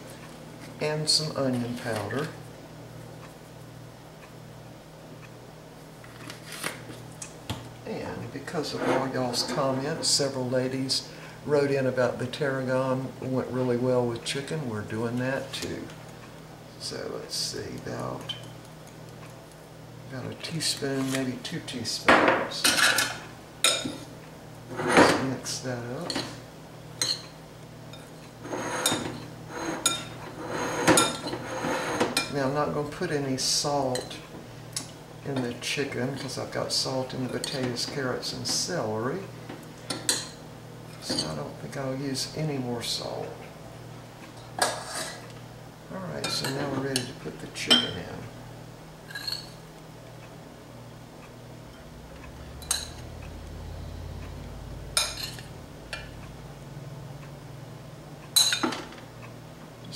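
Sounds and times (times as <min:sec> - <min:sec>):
low steady hum: 0:00.0 - 0:59.9
utensil scraping glass bowl: 0:28.4 - 0:32.2.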